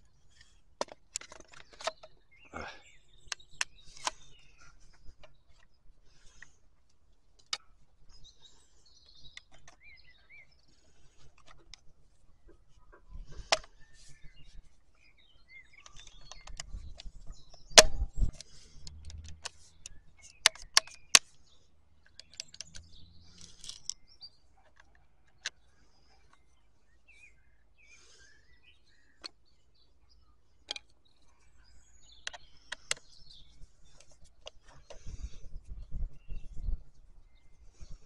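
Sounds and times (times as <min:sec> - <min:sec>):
birds chirping: 0:00.0 - 0:38.0
plastic housing clicks and knocks: 0:00.8 - 0:02.1, 0:15.8 - 0:21.3.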